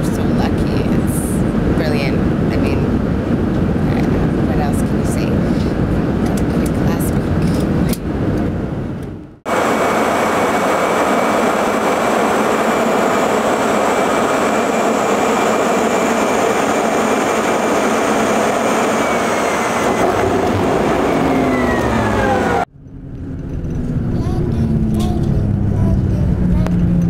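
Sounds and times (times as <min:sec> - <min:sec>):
vehicle rushing noise: 0:00.0 - 0:27.0
tones gliding downward: 0:09.5 - 0:23.1.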